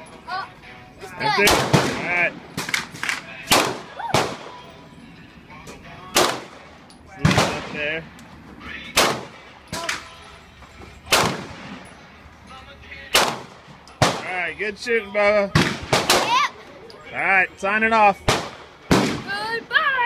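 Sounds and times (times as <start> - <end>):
rifle shots: 1.4 - 4.6, 6.1 - 6.6, 7.2 - 7.9, 9.0 - 10.0, 11.1 - 11.8, 13.1 - 14.3, 15.6 - 16.4, 18.3 - 19.3.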